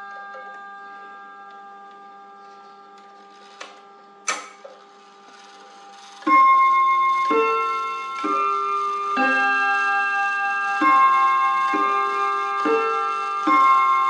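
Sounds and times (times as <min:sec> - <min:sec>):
clock chime melody: 0:05.3 - 0:14.0
clock chime rods ringing: 0:05.3 - 0:14.0.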